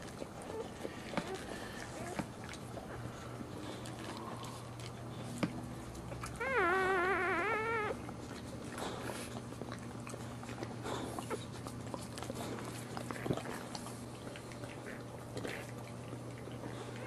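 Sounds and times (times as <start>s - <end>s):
puppy crying: 6.2s - 8.4s.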